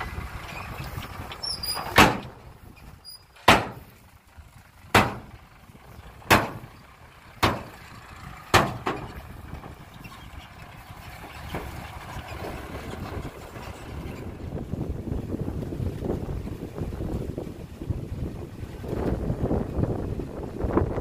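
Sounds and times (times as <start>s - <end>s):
low steady rumble: 0.0s - 21.0s
loud ringing bangs: 4.9s - 5.3s, 6.2s - 6.7s.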